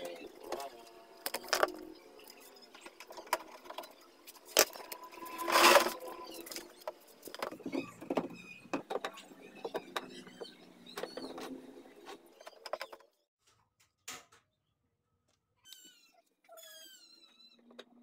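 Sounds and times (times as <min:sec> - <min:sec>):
rough scraping rustle: 0:04.4 - 0:07.3.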